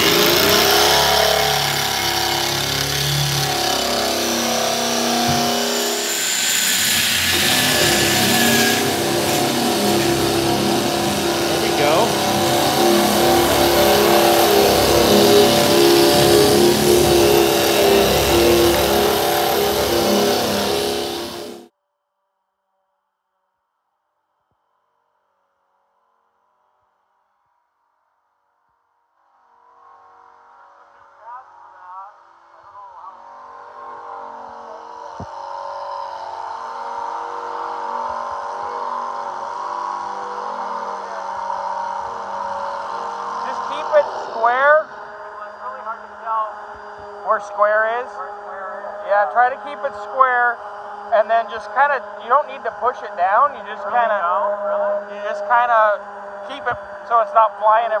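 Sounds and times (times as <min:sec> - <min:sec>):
sanding tool on sheet metal: 0:00.0 - 0:21.6.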